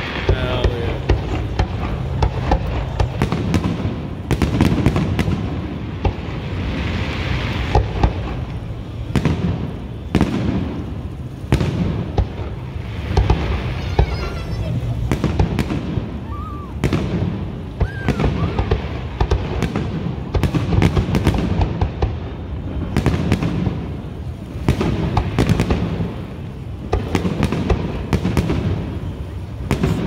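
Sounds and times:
low rumble: 0.0s - 27.0s.

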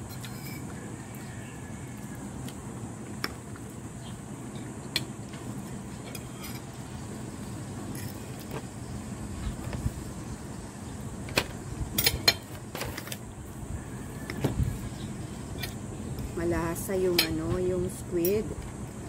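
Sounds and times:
fork scraping a ceramic plate: 0.1s - 0.7s.

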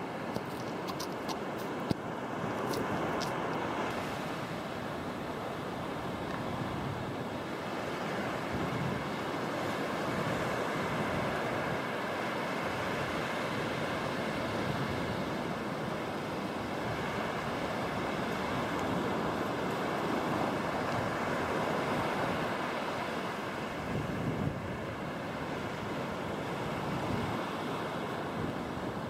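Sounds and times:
small waves breaking on beach: 0.0s - 29.0s
wind on microphone: 5.3s - 12.1s, 12.7s - 29.0s.

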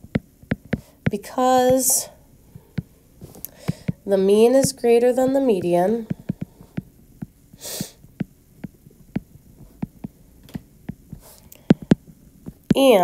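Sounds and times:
short hiss: 7.6s - 8.0s.

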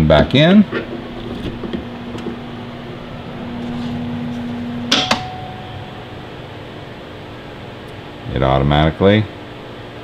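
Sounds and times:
inverter electrical hum: 0.0s - 10.0s.

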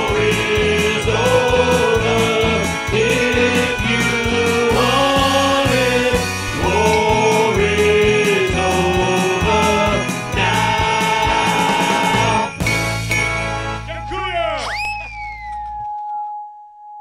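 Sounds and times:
men singing together: 0.0s - 12.6s
polka band music: 0.0s - 15.6s.

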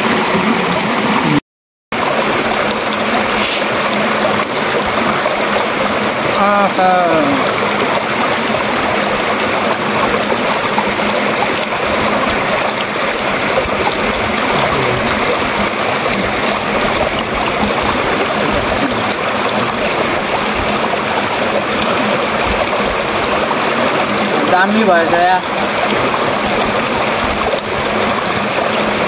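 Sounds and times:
stream rushing over rocks: 0.0s - 29.0s.

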